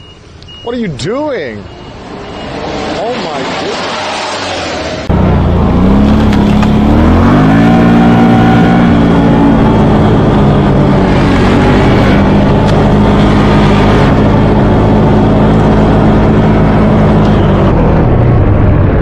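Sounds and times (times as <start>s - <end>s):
quad bike engine revving: 5.4s - 17.3s.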